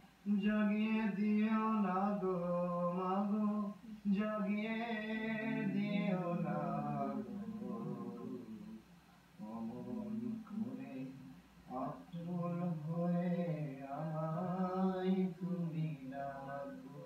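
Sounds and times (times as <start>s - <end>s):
man singing unaccompanied: 0.2s - 17.0s.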